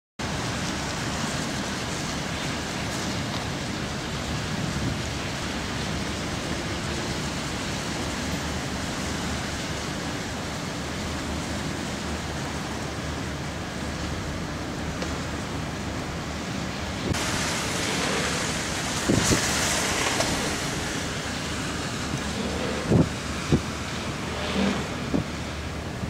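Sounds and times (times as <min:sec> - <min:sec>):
steady rushing street noise: 0:00.2 - 0:26.0
low rumble: 0:17.1 - 0:26.0.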